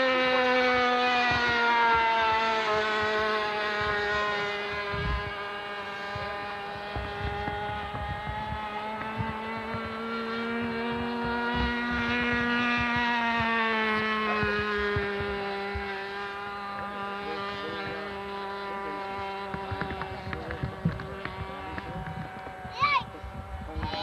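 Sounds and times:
model plane engine buzzing: 0.0 - 24.0
wind thumps on microphone: 4.7 - 5.4, 6.1 - 16.0, 19.4 - 24.0.

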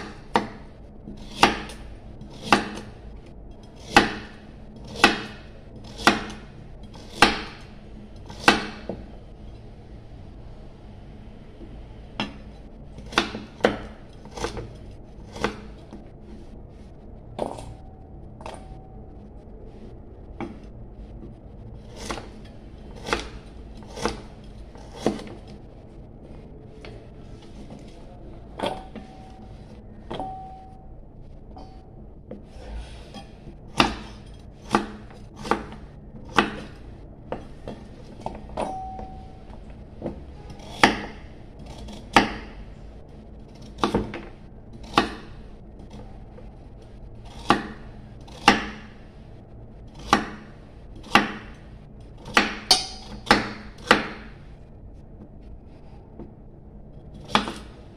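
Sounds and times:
knife chopping on wooden board: 0.0 - 2.9, 3.8 - 6.4, 7.0 - 7.6, 8.3 - 9.1, 15.3 - 15.8, 23.0 - 25.4, 33.7 - 39.2, 40.6 - 42.6, 47.4 - 48.9, 50.0 - 51.6, 52.2 - 54.4, 57.3 - 57.7.

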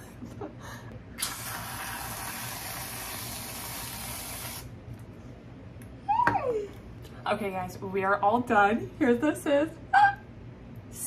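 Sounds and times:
whipped cream can spraying: 1.2 - 4.7.

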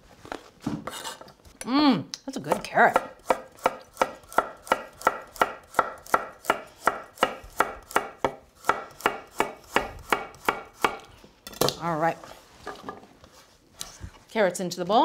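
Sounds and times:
knife chopping carrot on wooden board: 2.5 - 11.1.

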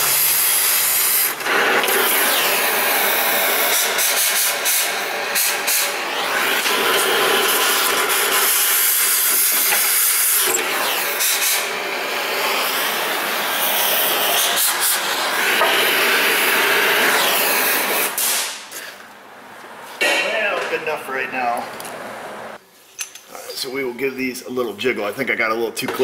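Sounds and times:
cutting torch hissing: 0.0 - 18.8.

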